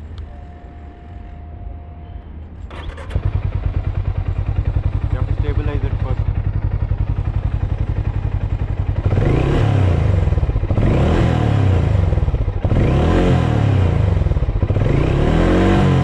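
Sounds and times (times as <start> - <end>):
motorcycle engine idling and revving: 0.0 - 16.0.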